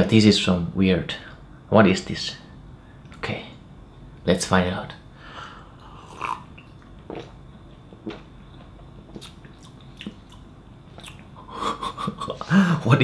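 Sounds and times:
mouth and lip clicks: 9.1 - 11.3.

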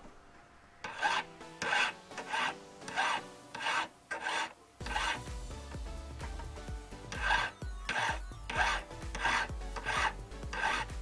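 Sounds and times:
hand file scraping metal ring: 0.8 - 5.3, 7.0 - 11.0.

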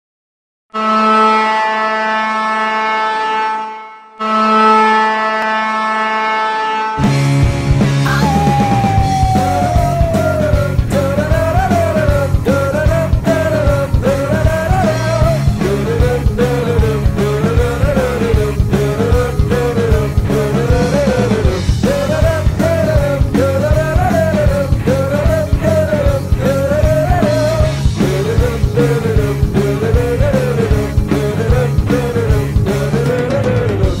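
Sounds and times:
loud rock music: 7.0 - 34.0
person singing: 8.0 - 34.0.

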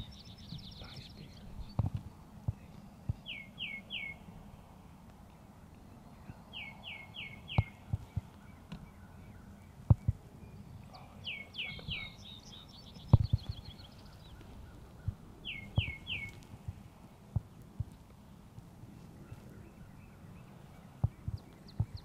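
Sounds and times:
songbirds calling: 0.0 - 22.0
short low thumps: 9.8 - 10.2, 13.0 - 13.7.

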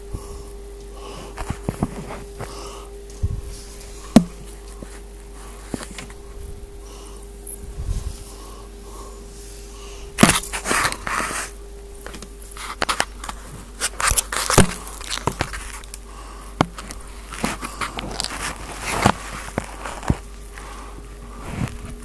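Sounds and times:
faint steady hum: 0.0 - 22.0
handling noise scraping and clicking: 1.3 - 6.2, 10.2 - 16.0, 16.6 - 20.8.

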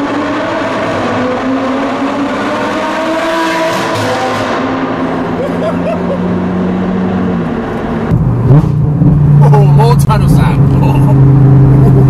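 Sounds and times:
car engine running: 4.8 - 12.0.

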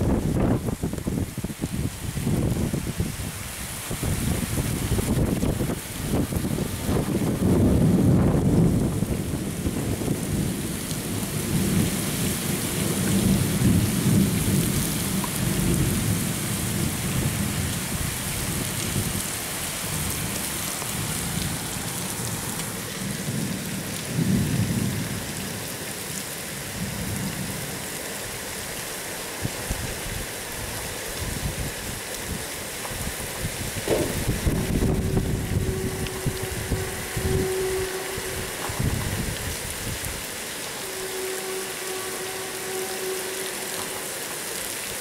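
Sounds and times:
gusty wind buffeting microphone: 0.0 - 19.4, 29.4 - 40.3.

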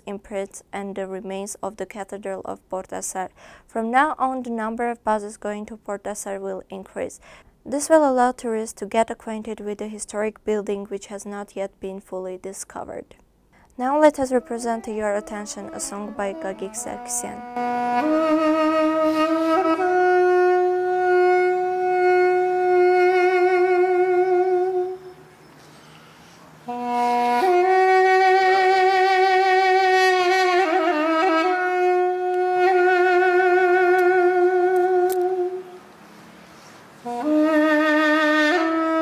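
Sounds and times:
duduk melody: 14.0 - 39.0.

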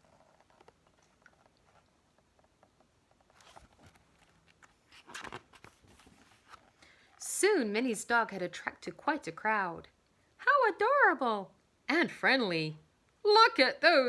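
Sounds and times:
paper pages rustling and turning: 3.2 - 6.8.

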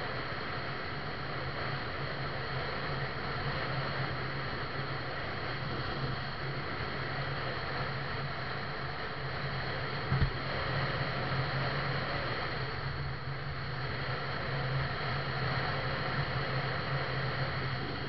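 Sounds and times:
low steady hum: 0.0 - 18.0
wind and road noise: 0.0 - 18.0
short low thump: 10.1 - 10.4.

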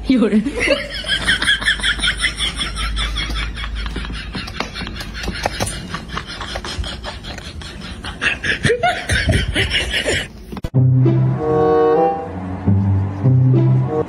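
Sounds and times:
giggling laughter: 0.5 - 10.4
music: 10.8 - 14.0.

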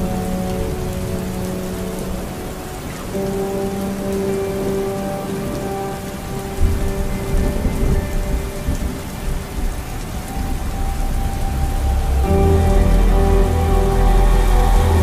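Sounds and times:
rain hissing on windshield: 0.0 - 15.0
sustained music notes: 0.0 - 15.0
low rumble: 10.4 - 15.0.

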